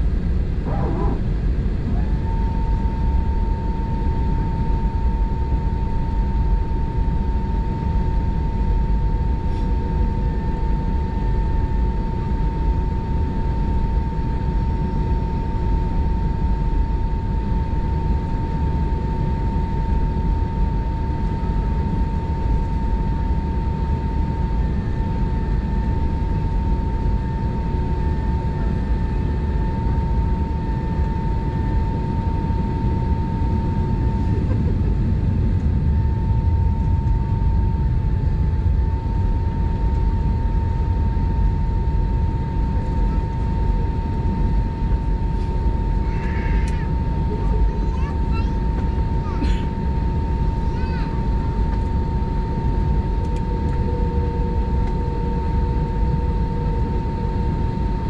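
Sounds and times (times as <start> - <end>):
airplane cabin rumble: 0.0 - 58.0
steady high engine hum: 0.0 - 58.0.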